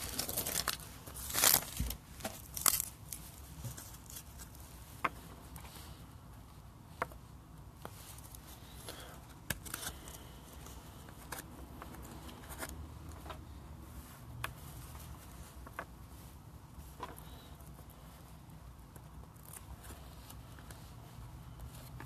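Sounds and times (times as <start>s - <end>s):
soft card rustling: 0.0s - 6.0s, 7.8s - 22.0s.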